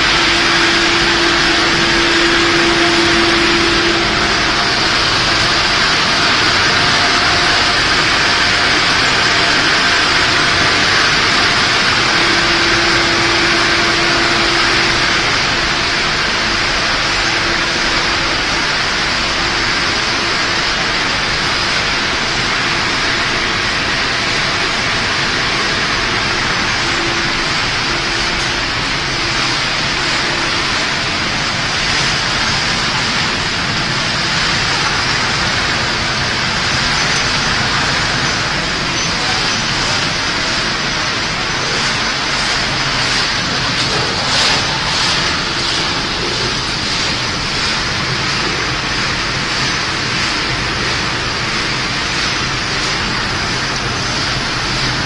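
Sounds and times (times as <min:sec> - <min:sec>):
faint hum: 0:00.0 - 0:20.0
factory machinery whirring hiss: 0:00.0 - 0:55.0.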